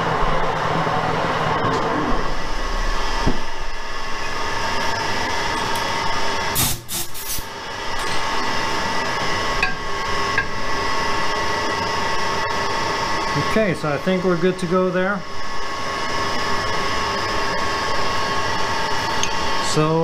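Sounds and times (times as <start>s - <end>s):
steady machine hum: 0.0s - 20.0s
lathe humming: 7.5s - 20.0s.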